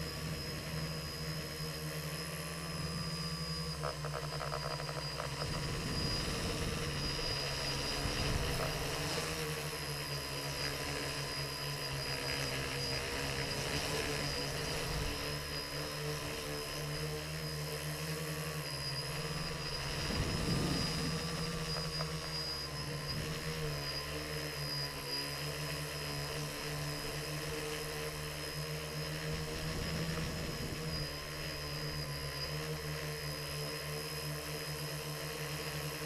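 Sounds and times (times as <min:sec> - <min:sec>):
drone propellers whirring: 0:00.0 - 0:36.0
rush of air noise: 0:05.4 - 0:09.4, 0:19.5 - 0:22.4.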